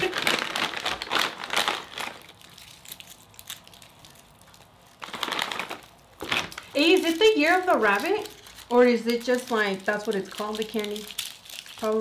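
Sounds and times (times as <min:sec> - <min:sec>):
plastic candy bag crinkling: 0:00.0 - 0:12.0.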